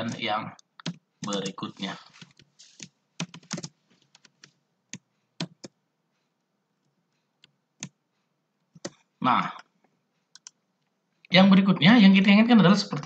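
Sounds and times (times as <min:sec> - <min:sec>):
keyboard typing: 0:00.0 - 0:05.8, 0:06.8 - 0:08.0, 0:08.6 - 0:10.9.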